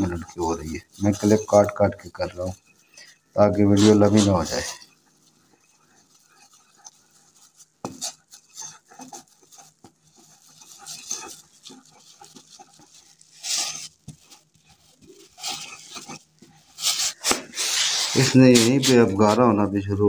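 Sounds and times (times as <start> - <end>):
pestle grinding in a mortar: 0.0 - 19.0.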